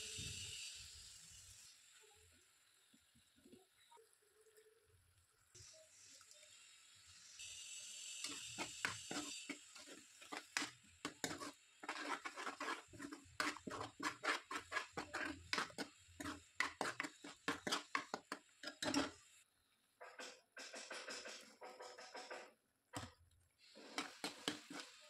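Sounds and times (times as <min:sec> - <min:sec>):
brief hiss: 0:00.0 - 0:02.2
utensils knocking and tapping: 0:20.0 - 0:23.1.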